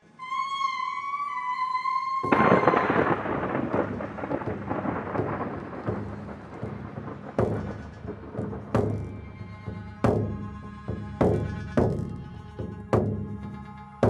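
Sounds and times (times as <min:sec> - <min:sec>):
wavering held note: 0:00.2 - 0:03.4
thunder-like crash and rumble: 0:02.2 - 0:10.4
sharp crack: 0:02.2 - 0:10.5.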